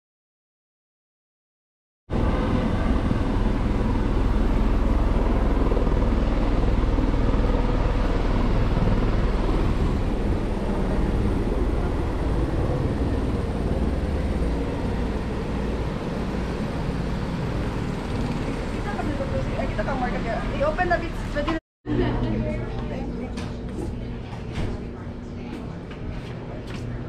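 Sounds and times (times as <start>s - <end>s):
helicopter engine and rotor: 2.1s - 21.6s.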